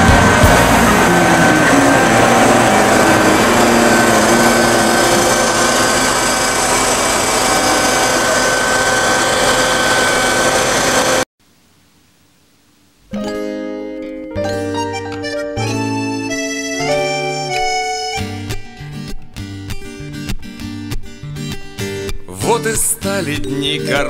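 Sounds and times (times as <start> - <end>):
train engine running with whine: 0.0 - 11.3.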